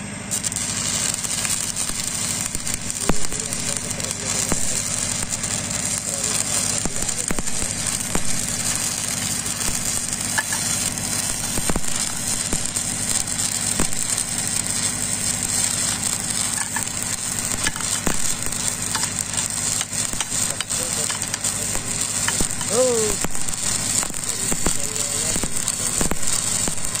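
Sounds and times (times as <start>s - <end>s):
welding arc crackling sizzle: 0.0s - 27.0s.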